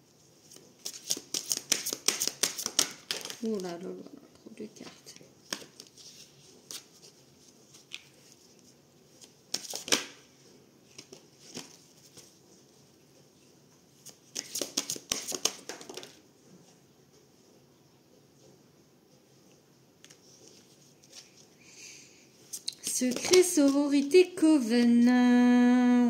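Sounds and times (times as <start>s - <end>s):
cards clicking: 0.8s - 3.4s, 14.3s - 16.1s
cards riffling snaps: 0.8s - 3.4s, 14.1s - 16.1s.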